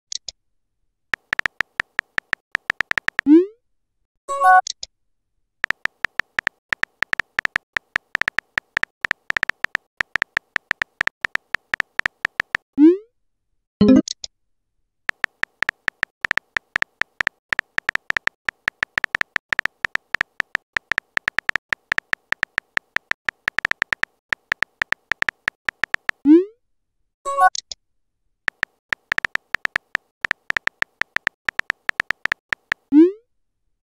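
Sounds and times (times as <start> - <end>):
phone key clicks with beeps: 1.2 - 3.3, 5.6 - 12.6, 15.1 - 26.2, 28.5 - 32.8.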